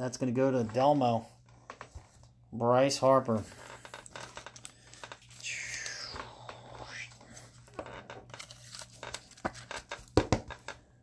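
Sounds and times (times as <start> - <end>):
card scraping into plastic sleeve: 7.3 - 10.6.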